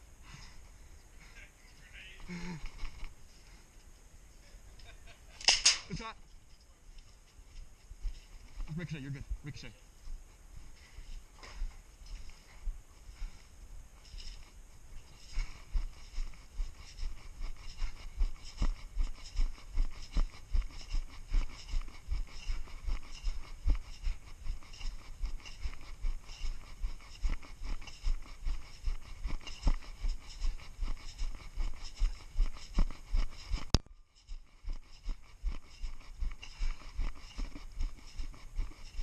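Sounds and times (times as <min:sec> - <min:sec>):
sharp clicks: 0:05.4 - 0:06.0
sharp crack: 0:05.4 - 0:06.0
footsteps in snow: 0:07.0 - 0:39.0.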